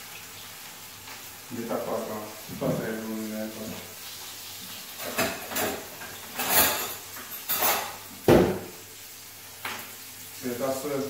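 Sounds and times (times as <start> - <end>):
dishes and pots clattering: 4.9 - 8.7.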